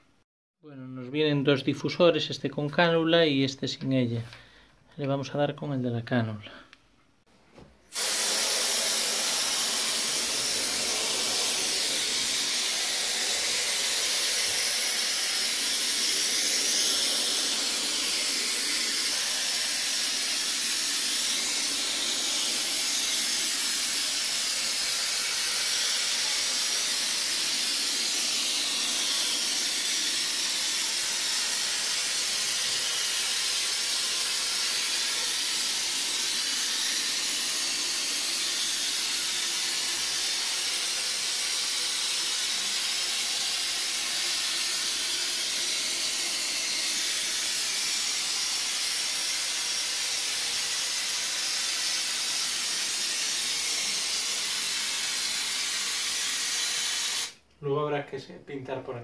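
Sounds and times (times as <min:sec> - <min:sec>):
aerosol can spraying: 0:07.9 - 0:57.4.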